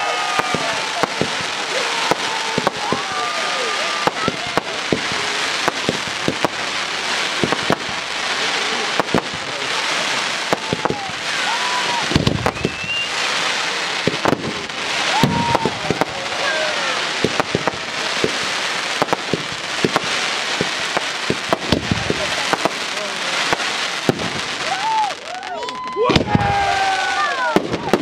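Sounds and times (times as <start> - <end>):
fireworks bangs: 0.0 - 28.0
fireworks crackling: 0.0 - 28.0
deep fireworks thumps: 0.3 - 3.2, 3.9 - 11.2, 12.0 - 13.3, 14.0 - 16.3, 17.1 - 24.8, 26.1 - 26.6.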